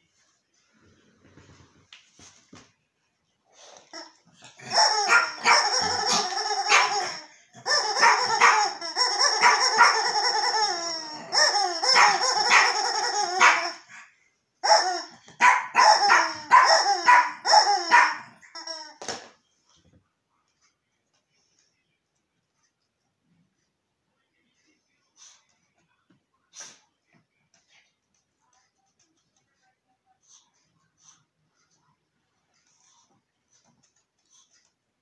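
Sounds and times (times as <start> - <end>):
rubber chicken toy squawking: 4.0 - 13.9.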